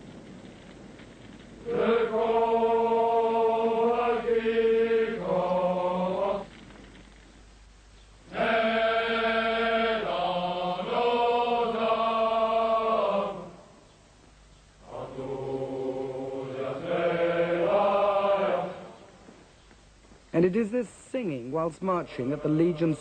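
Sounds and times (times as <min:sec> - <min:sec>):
men's chorus singing: 0:01.6 - 0:06.6, 0:08.3 - 0:13.7, 0:14.8 - 0:19.2.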